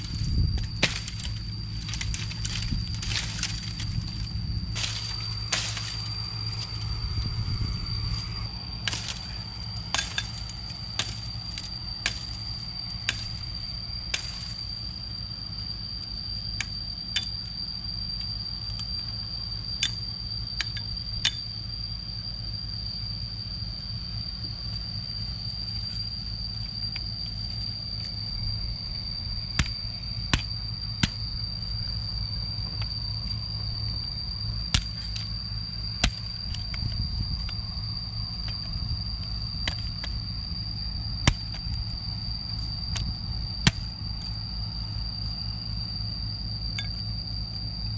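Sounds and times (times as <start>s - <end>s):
low rumble: 0.0s - 15.7s
high-pitched whine: 0.0s - 47.9s
metal spade striking dry ground: 0.1s - 6.8s, 8.8s - 12.4s, 14.1s - 14.6s, 41.2s - 41.8s, 42.9s - 44.3s.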